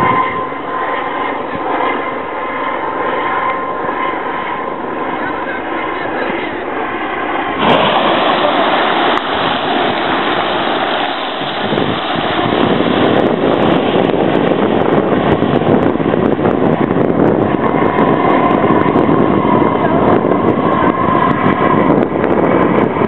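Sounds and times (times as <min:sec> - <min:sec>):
spouting and falling water: 0:07.6 - 0:15.8
geyser erupting: 0:07.6 - 0:21.2.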